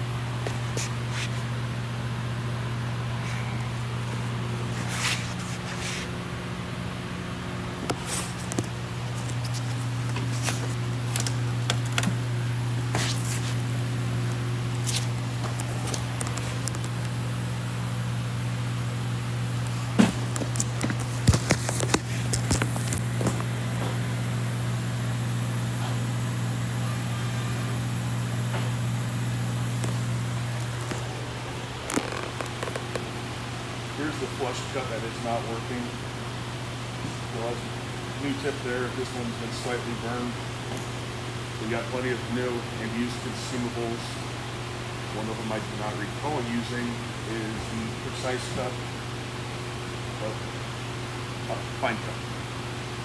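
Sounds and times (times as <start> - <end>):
low electrical hum: 0.0 - 53.0
rustles and clicks: 30.7 - 33.1.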